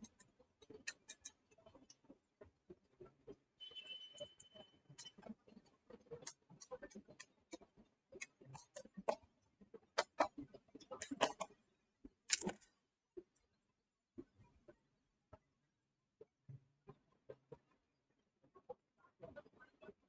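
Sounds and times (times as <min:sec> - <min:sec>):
stylus tapping on tablet screen: 0:10.0 - 0:10.4.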